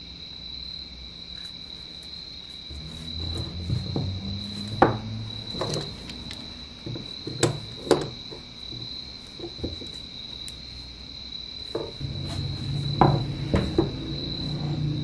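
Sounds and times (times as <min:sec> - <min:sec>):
steady high-pitched tone: 0:12.0 - 0:15.0.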